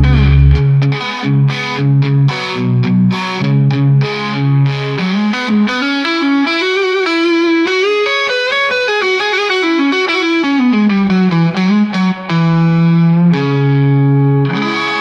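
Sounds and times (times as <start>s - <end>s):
distorted electric guitar solo: 0.0s - 15.0s.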